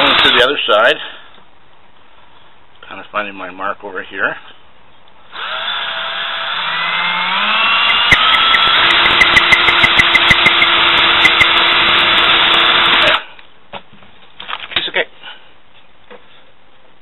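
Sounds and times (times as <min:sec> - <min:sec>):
cordless drill motor: 0:00.0 - 0:00.5, 0:05.3 - 0:13.2
drill bit clicking through plastic: 0:07.6 - 0:13.0.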